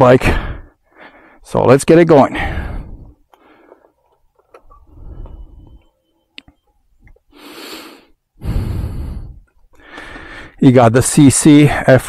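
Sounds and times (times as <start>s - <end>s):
heavy breaths: 0.2s - 1.5s, 2.2s - 6.0s, 7.1s - 10.6s.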